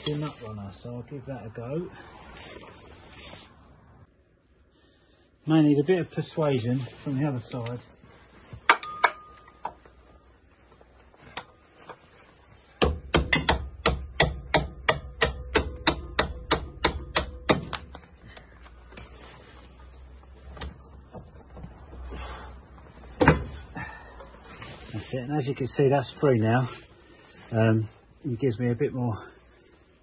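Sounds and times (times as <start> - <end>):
hammer striking metal bolt: 12.8 - 18.1.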